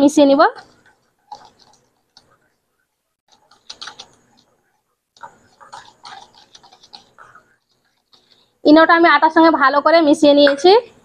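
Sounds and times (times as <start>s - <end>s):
whisk scraping metal bowl: 3.3s - 8.4s.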